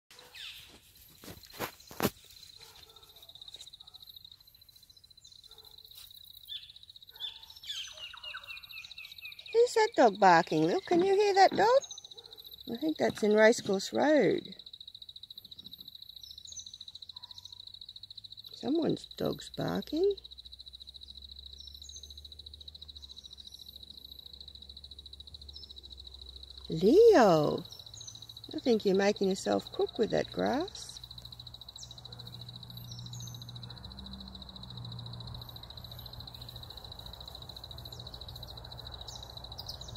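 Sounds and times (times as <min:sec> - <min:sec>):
bird chirps: 0:00.2 - 0:39.9
insects trilling: 0:00.2 - 0:39.9
distant dog barking: 0:02.6 - 0:04.2, 0:05.4 - 0:06.0, 0:07.1 - 0:08.7, 0:11.8 - 0:12.6, 0:17.1 - 0:17.6, 0:32.0 - 0:32.5, 0:33.6 - 0:34.1.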